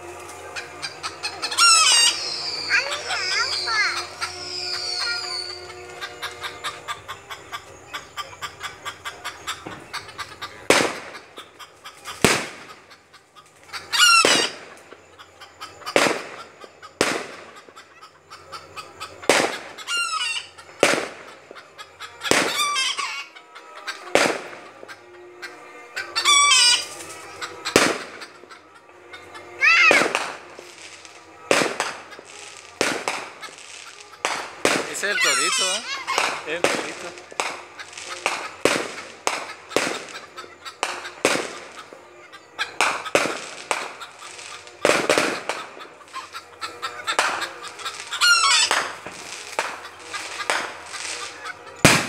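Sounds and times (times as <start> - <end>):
fireworks bangs: 0.0 - 7.5, 9.6 - 13.0, 14.0 - 14.9, 15.9 - 17.8, 19.1 - 21.6, 22.2 - 22.7, 24.1 - 24.9, 26.5 - 28.4, 29.6 - 42.0, 42.6 - 46.2, 47.1 - 52.0
high wavering whistling glides: 0.0 - 10.1.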